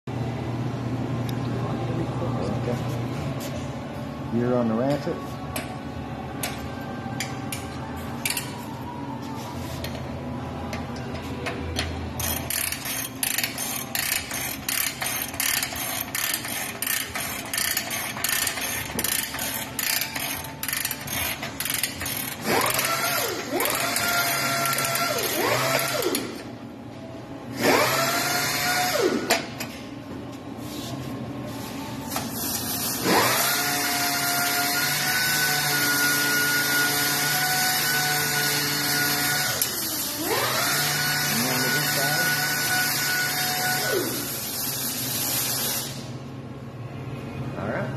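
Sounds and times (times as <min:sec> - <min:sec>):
ratchet clicking: 0:11.8 - 0:26.3
power tool motor whine: 0:22.4 - 0:26.4, 0:27.6 - 0:29.3, 0:33.0 - 0:44.2.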